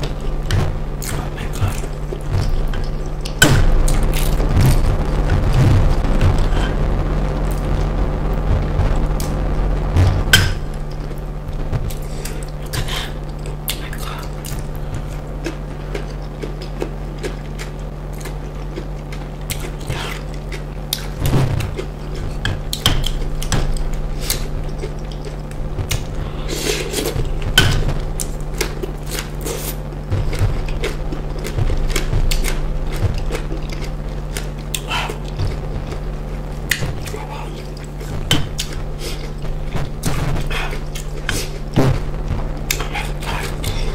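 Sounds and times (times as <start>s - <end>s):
low hum: 0.0s - 43.9s
wet chewing and mouth smacks: 13.4s - 21.1s.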